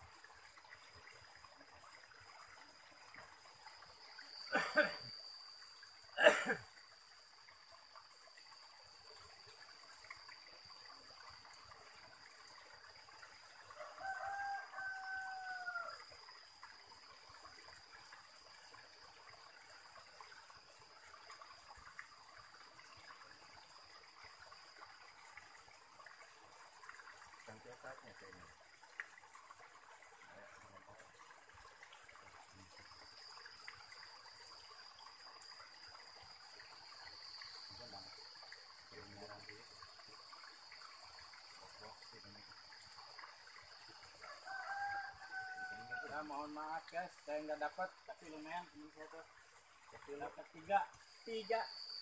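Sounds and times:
water trickling over rocks: 0.0 - 52.0
rooster crowing: 13.8 - 16.0, 44.2 - 46.3.

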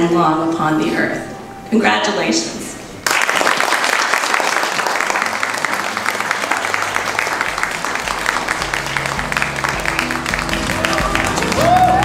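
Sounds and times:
crowd applauding: 3.0 - 12.0
music with bass notes: 5.9 - 12.0.

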